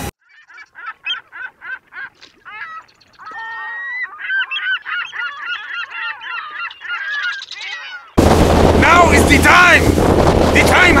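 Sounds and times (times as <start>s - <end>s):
birds honking: 0.2s - 8.2s.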